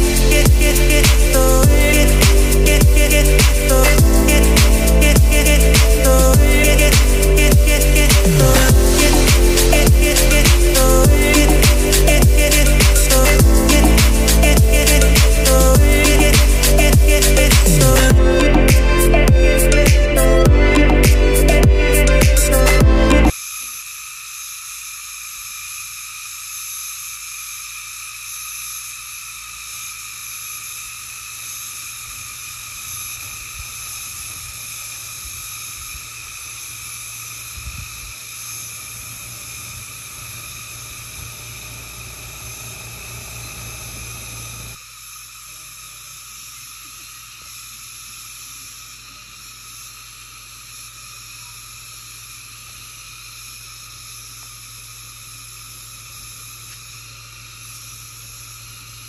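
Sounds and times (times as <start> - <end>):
low rumble: 0.0 - 23.3
insect chorus: 0.0 - 59.0.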